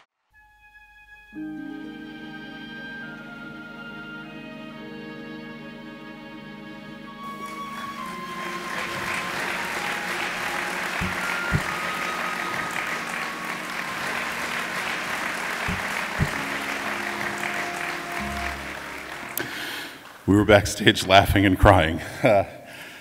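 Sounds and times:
faint held music notes: 1.3s - 20.0s
audience applauding: 7.2s - 20.4s.

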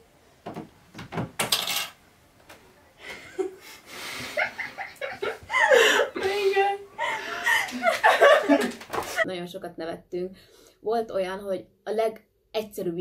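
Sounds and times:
woman stifled laughter: 3.0s - 9.2s
bedding rustling: 3.1s - 9.2s.

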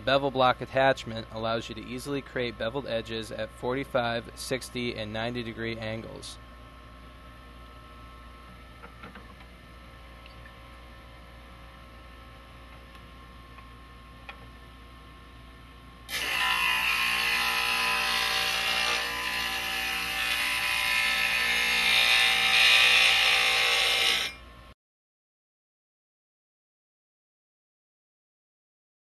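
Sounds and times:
glass grinder grinding: 22.0s - 24.4s.

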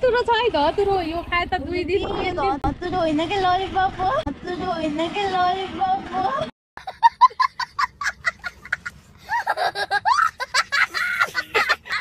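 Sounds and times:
young child laughing: 6.8s - 12.0s.

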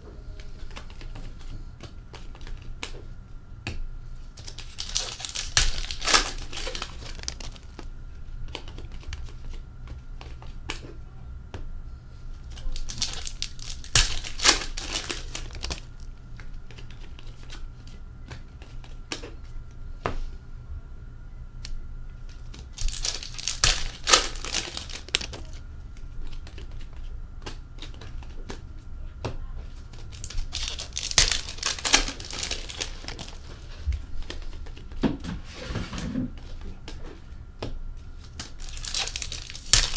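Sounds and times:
wrappers tearing and crinkling: 4.4s - 7.8s, 12.4s - 16.1s, 22.4s - 25.6s, 30.0s - 34.8s, 38.2s - 39.9s
cards clicking: 21.6s - 28.6s, 29.9s - 33.4s.

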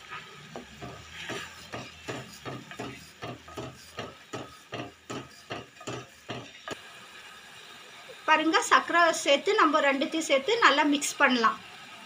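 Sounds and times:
wooden spatula scraping metal pot: 0.0s - 6.8s.

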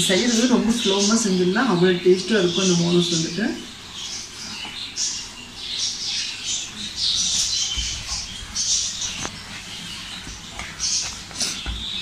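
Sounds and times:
hands kneading dough: 7.6s - 12.0s.

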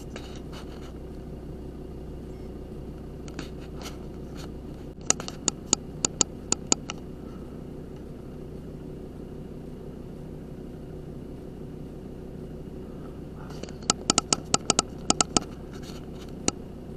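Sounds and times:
steady low hum: 0.0s - 16.9s
sharp clicks: 5.0s - 7.0s, 13.6s - 15.5s.

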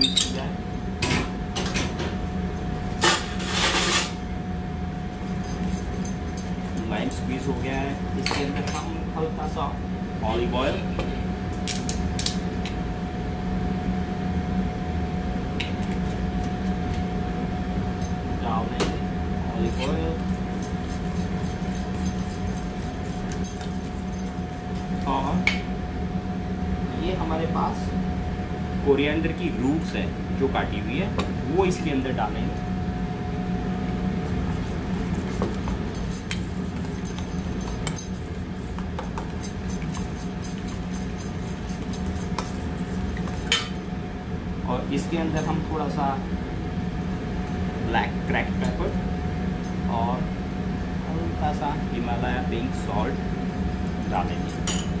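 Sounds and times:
glass and spoon clinking on bowl: 0.0s - 0.4s, 54.1s - 55.0s
kitchen machinery hum: 0.0s - 55.0s
thin steady whine: 0.0s - 55.0s.

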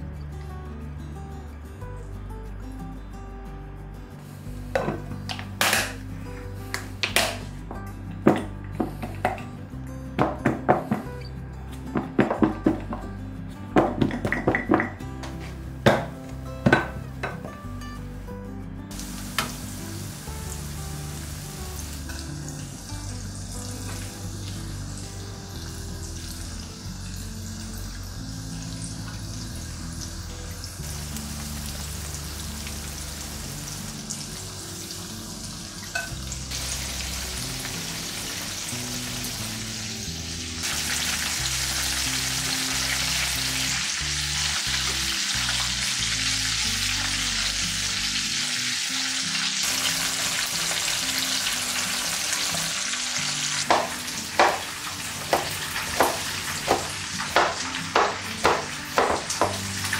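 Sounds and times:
hot oil sizzling and bubbling: 4.2s - 7.6s, 18.9s - 59.9s
knife chopping on cutting board: 53.7s - 54.7s, 55.3s - 59.6s.

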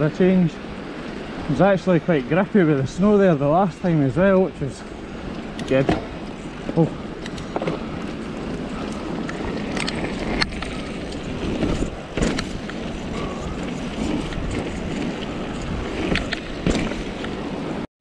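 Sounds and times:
bike rattling over bumps: 0.0s - 17.8s
bike tyre noise: 0.0s - 17.9s
wind on microphone: 6.5s - 17.8s.

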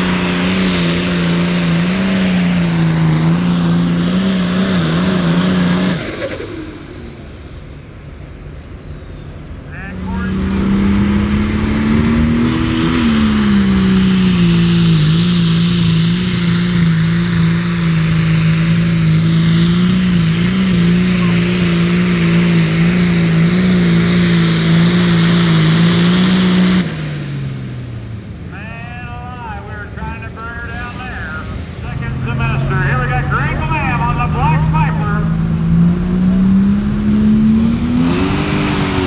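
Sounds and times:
tractor engine high-revving drone: 0.0s - 39.0s.

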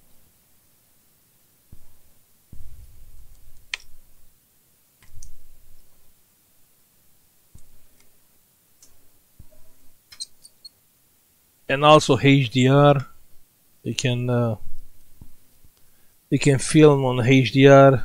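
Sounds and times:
soft low bumps: 1.7s - 4.0s.

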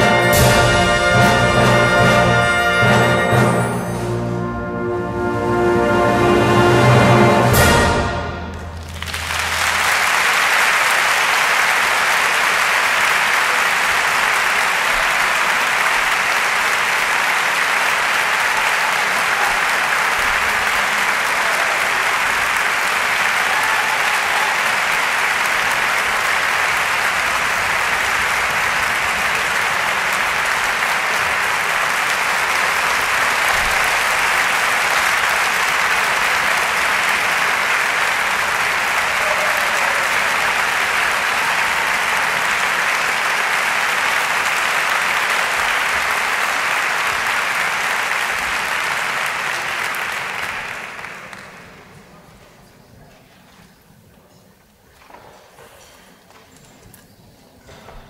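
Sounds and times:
audience applauding: 6.9s - 52.3s.

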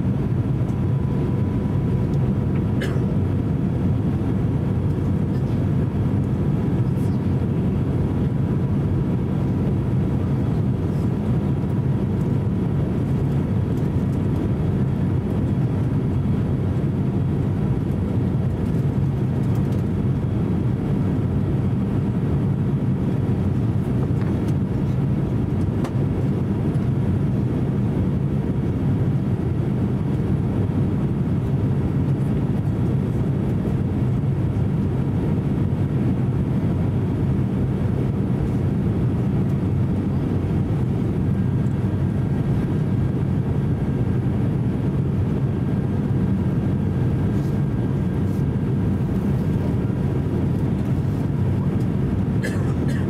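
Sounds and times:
airliner cabin rumble: 0.0s - 53.0s.

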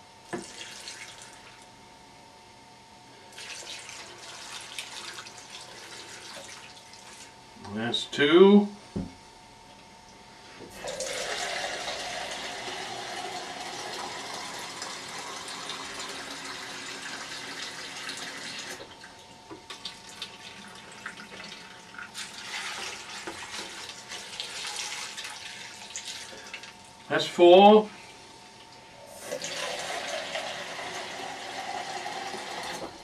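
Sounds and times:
water running from tap: 0.4s - 1.4s, 3.4s - 7.3s, 10.8s - 18.9s, 19.7s - 26.8s, 29.2s - 32.9s.

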